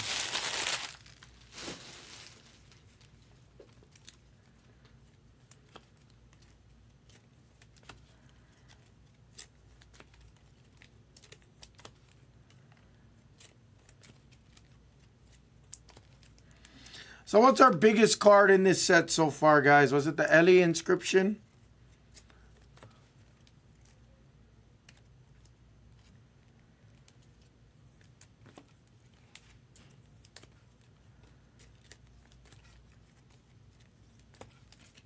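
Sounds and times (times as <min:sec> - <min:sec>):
trading cards rustling: 0:00.0 - 0:17.0, 0:24.8 - 0:35.0.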